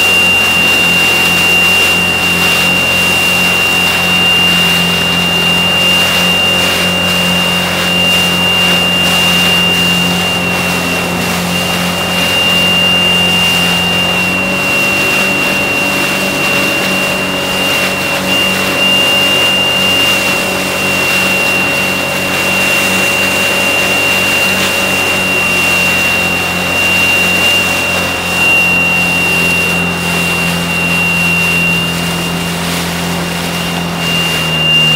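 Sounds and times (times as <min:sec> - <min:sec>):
jet ski engine running: 0:00.0 - 0:34.9
steady high-pitched tone: 0:00.0 - 0:34.9.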